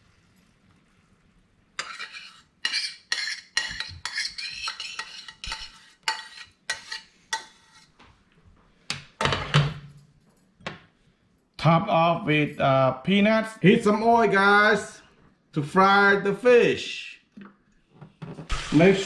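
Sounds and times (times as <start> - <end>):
metal spoon scraping a skillet: 1.8 - 8.0.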